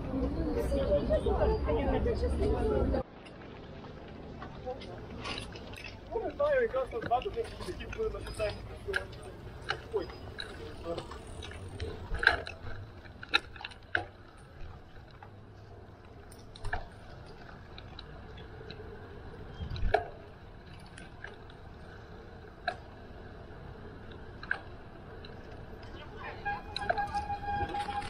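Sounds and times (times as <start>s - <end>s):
bicycle rumbling over rough path: 3.0s - 28.0s.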